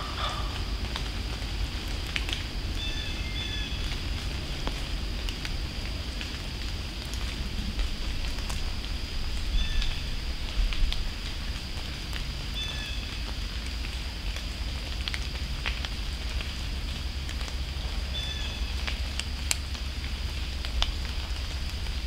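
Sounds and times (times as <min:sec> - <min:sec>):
turkeys scratching through leaves: 0:00.0 - 0:06.0, 0:07.0 - 0:11.9, 0:16.6 - 0:22.0
crackling in dry leaf litter: 0:00.0 - 0:22.0
low wind rumble: 0:00.0 - 0:22.0.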